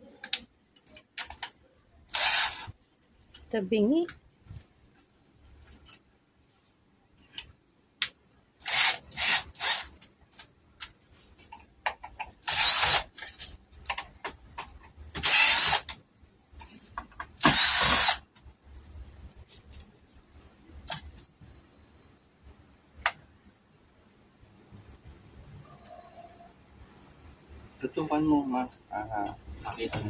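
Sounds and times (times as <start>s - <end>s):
drill motor driving screws: 2.1s - 2.7s, 8.6s - 10.0s, 12.4s - 13.3s, 15.2s - 16.0s, 17.4s - 18.2s.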